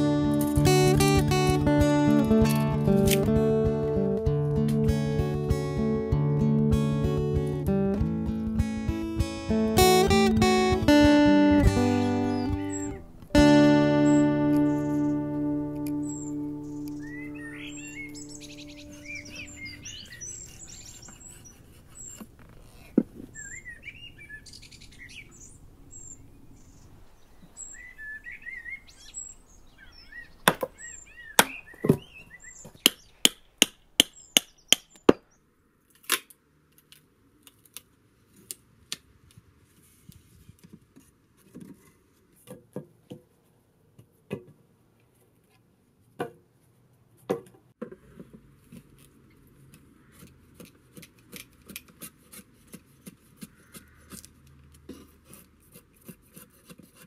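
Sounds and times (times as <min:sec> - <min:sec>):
birds chirping: 0:00.0 - 0:35.5
drawknife shaving wood: 0:20.0 - 0:23.6, 0:48.7 - 0:57.0
hand tool chopping wood: 0:30.4 - 0:30.8, 0:31.4 - 0:32.1, 0:49.8 - 0:57.0.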